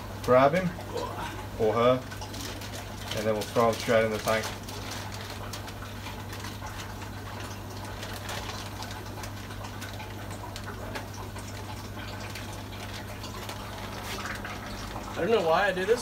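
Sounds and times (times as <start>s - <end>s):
water sloshing in bag: 0.0s - 16.0s
plastic bag crinkling: 2.0s - 15.1s.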